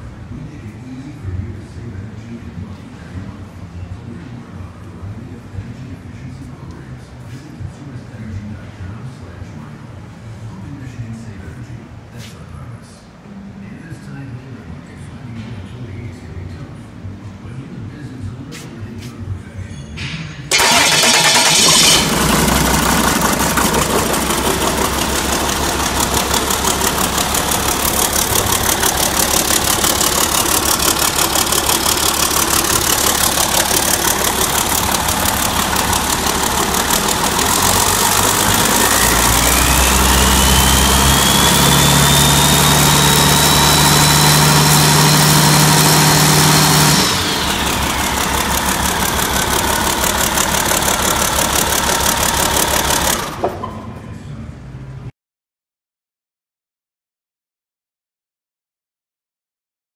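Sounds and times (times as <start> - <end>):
turbocharger whine: 20.5 - 53.6
diesel engine idling and revving: 20.5 - 53.9.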